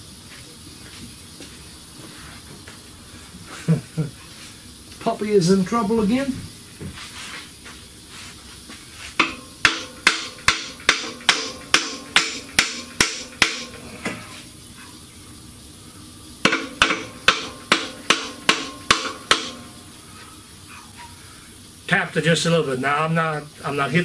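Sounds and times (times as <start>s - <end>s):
hammer tapping on metal: 9.2s - 13.8s, 16.4s - 19.7s.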